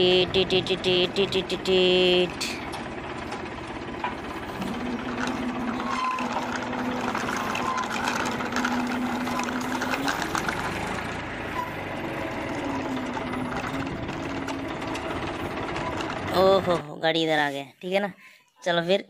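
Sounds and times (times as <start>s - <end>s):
toy tractor wheels rattling on cement: 1.8s - 16.8s.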